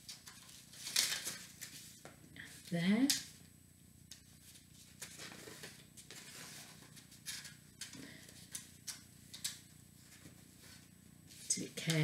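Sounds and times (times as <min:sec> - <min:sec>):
paper plates rustling: 0:00.0 - 0:02.1, 0:04.4 - 0:08.7.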